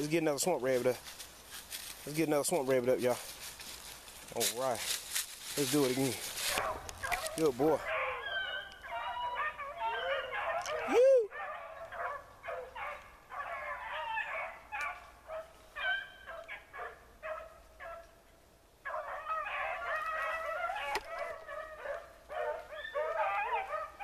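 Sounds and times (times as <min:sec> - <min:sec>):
beagles baying and yelping: 0:04.6 - 0:18.2, 0:18.8 - 0:24.0.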